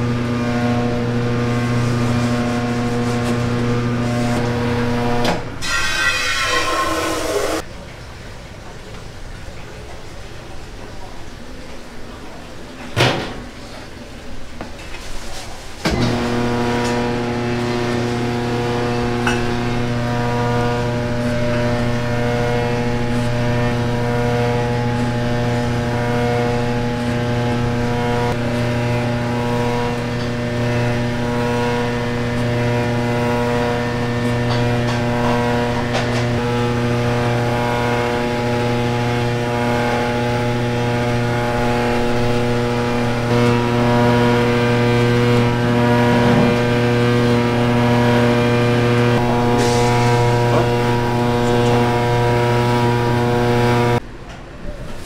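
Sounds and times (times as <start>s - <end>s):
mixing machine motor humming: 0.0s - 5.6s, 15.8s - 54.0s.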